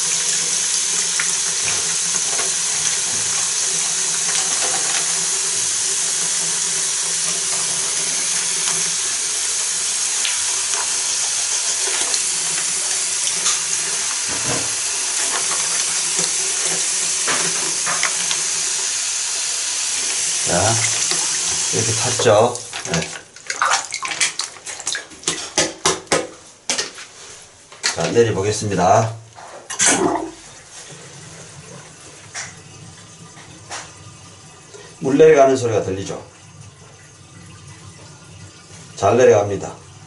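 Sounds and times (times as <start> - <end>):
faucet running into basin: 0.0 - 25.6, 29.8 - 40.0
hands splashing in water: 22.6 - 25.1.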